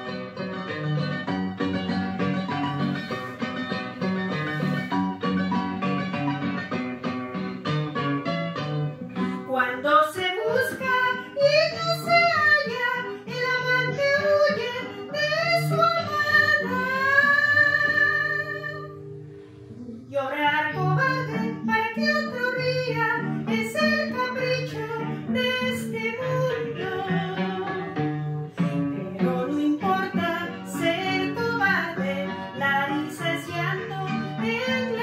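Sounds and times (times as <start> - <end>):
guitar accompaniment: 0.0 - 35.0
woman singing into microphone: 9.4 - 19.0, 19.8 - 35.0.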